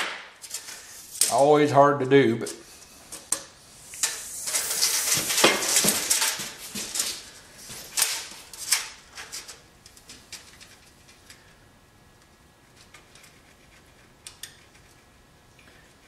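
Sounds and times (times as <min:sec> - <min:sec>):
tape measure scraping over wood: 0:02.6 - 0:07.3.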